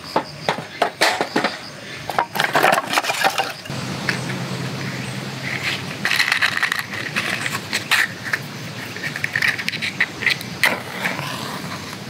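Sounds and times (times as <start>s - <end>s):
matchbox clicks and rattles: 5.5s - 10.8s.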